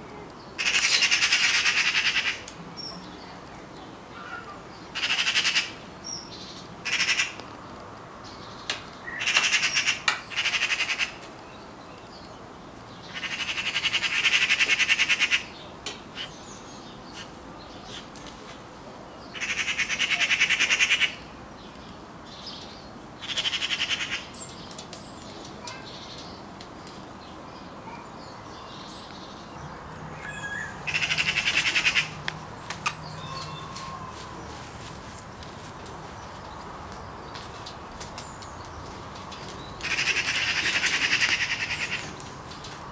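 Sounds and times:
magpie chattering: 30.2s - 32.2s.

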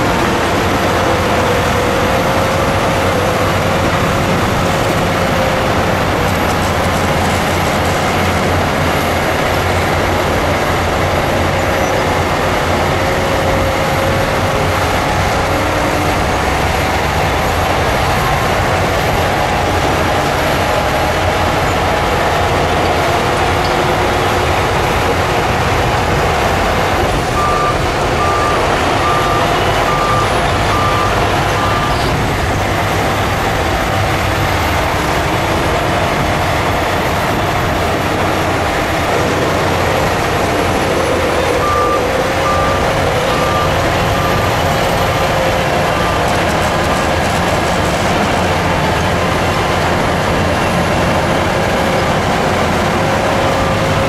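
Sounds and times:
diesel engines running: 0.0s - 54.0s
reversing alarm beeping: 26.8s - 32.2s, 40.5s - 45.3s.

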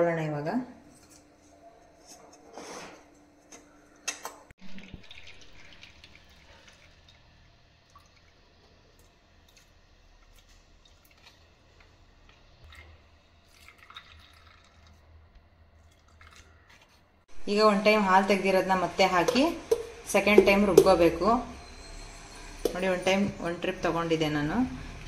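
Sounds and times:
liquid dripping into bowl: 4.6s - 8.4s, 13.5s - 15.0s.

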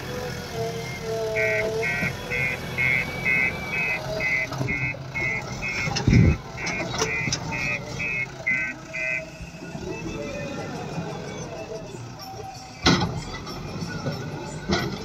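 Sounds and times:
diesel engine running: 0.0s - 15.0s
reversing alarm beeping: 0.8s - 12.0s.

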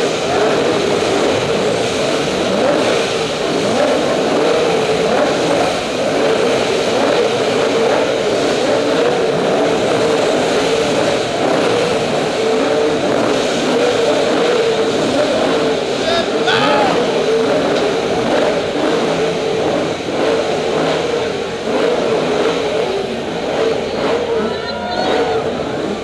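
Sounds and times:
car engine revving high: 0.0s - 26.0s.

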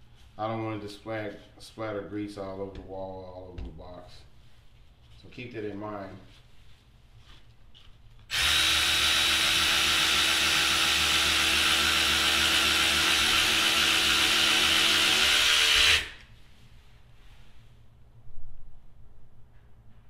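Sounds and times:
cordless ratchet motor whirring: 8.3s - 16.2s.

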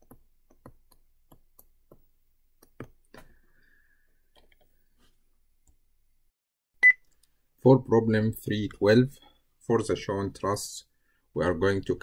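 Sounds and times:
stylus tapping on tablet screen: 0.0s - 3.0s.

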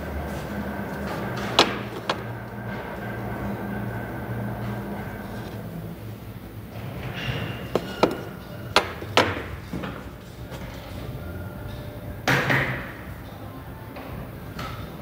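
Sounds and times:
metal parts clanking on workbench: 7.7s - 8.4s.

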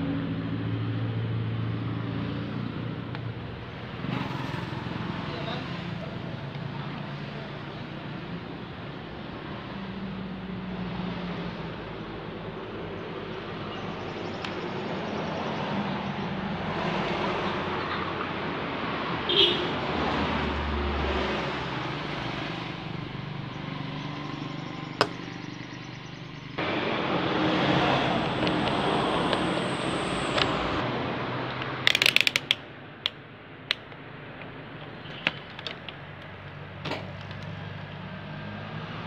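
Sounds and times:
road traffic noise: 0.0s - 39.0s
sharp clicks of handling probes: 31.6s - 37.6s.

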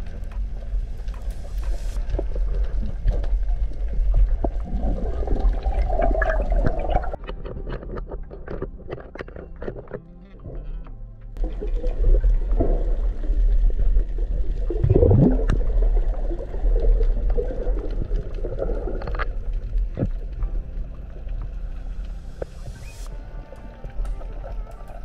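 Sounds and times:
underwater rumble and gurgling: 0.0s - 25.0s
rising gurgle: 1.6s - 7.2s, 11.4s - 22.0s.

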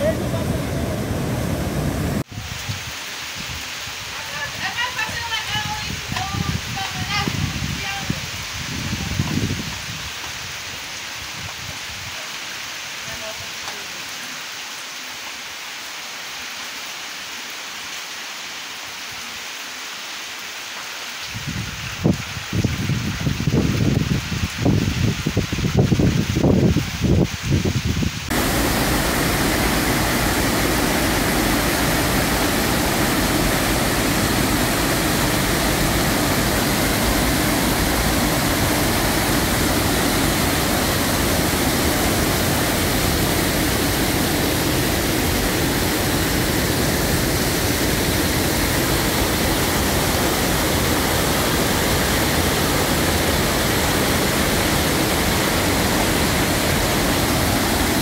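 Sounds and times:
floodwater rushing over rocks: 0.0s - 9.6s, 28.3s - 58.0s.

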